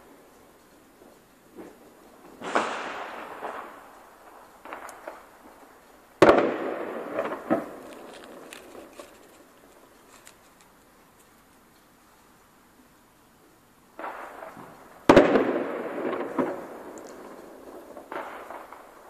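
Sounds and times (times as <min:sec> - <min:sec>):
distant crackles: 0:00.0 - 0:12.3, 0:13.9 - 0:19.0
small pops: 0:00.6 - 0:11.9
firework bangs with echo: 0:01.5 - 0:08.9, 0:14.0 - 0:19.0.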